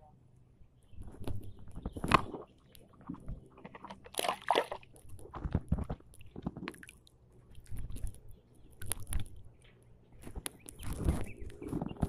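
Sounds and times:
water sloshing and splashing: 1.2s - 9.4s.

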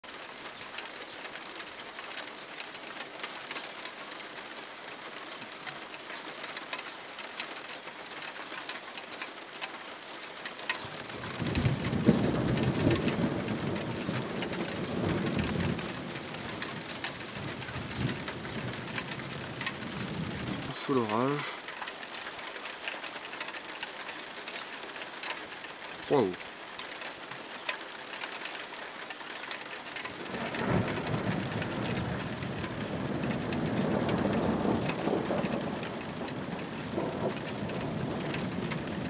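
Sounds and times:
raindrops tapping on surfaces: 0.0s - 39.0s
steady rain falling: 0.0s - 39.0s
low thunder rumble: 10.9s - 21.2s, 30.1s - 39.0s.

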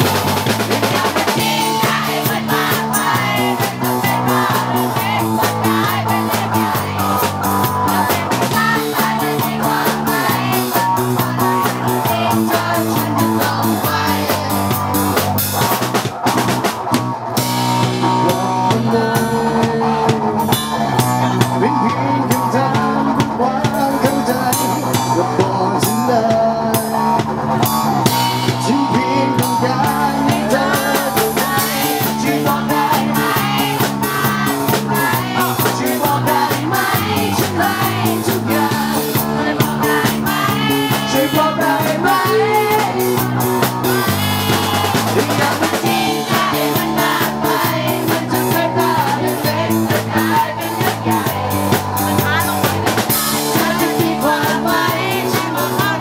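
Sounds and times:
drum kit steady beat: 0.0s - 56.0s.

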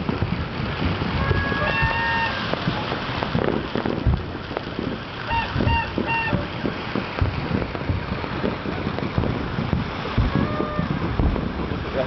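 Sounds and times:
fireworks popping and crackling: 0.0s - 12.0s
short toots: 5.3s - 6.5s.

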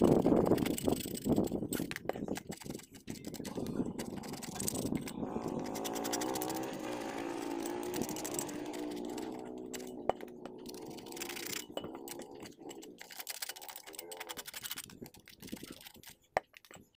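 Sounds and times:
low tonal hum: 3.6s - 14.8s.

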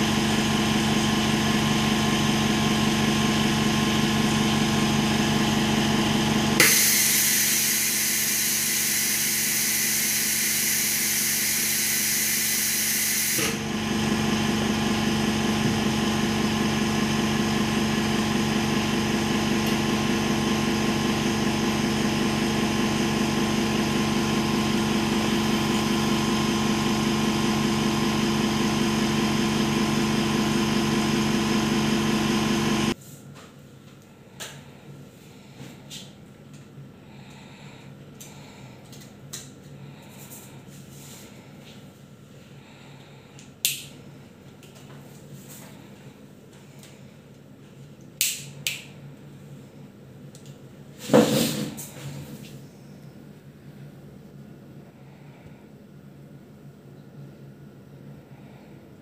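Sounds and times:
motor humming: 3.6s - 18.4s.

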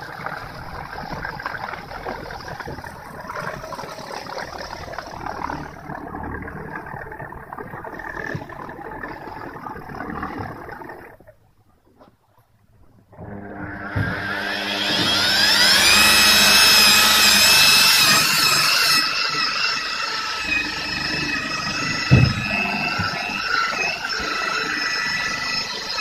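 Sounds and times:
electric polisher whining: 13.2s - 26.0s
short thump: 22.1s - 23.2s.

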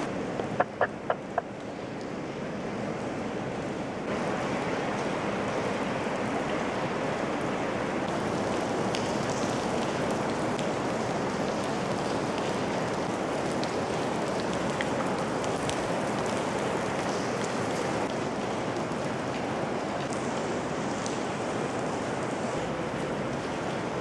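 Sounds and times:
steady rain falling: 0.0s - 24.0s
water drops ticking: 0.4s - 1.7s.

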